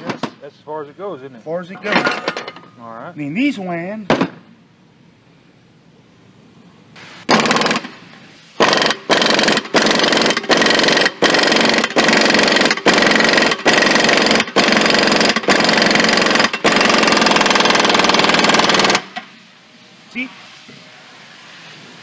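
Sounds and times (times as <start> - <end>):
impact wrench hammering: 7.3 - 8.0, 8.6 - 19.3.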